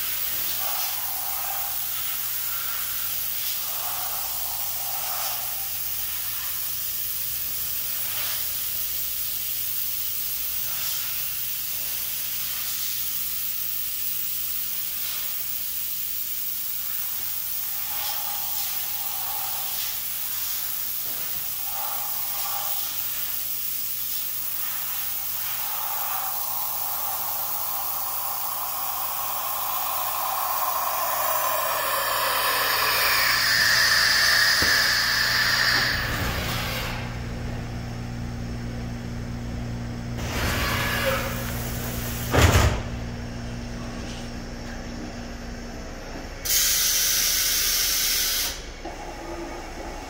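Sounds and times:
steady hiss: 0.0 - 37.7, 46.4 - 48.8
machine whine: 16.5 - 38.2
low hum: 24.6 - 39.9.

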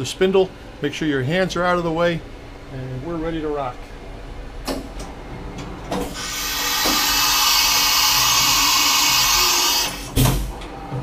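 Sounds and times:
compressed air hissing: 6.0 - 10.2
heavy machine clunk: 10.1 - 11.0.

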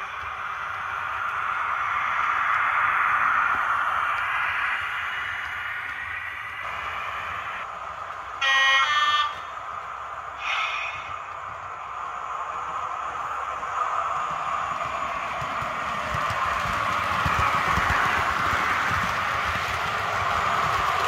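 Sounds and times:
model train running: 0.0 - 21.0
two-tone train horn blast: 8.4 - 9.5.

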